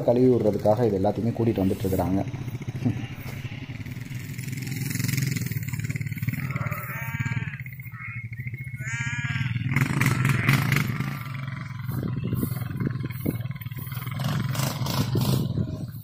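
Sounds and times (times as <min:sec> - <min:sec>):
small engine running: 0:00.0 - 0:16.0
sheep bleating: 0:01.2 - 0:04.8, 0:05.6 - 0:12.5.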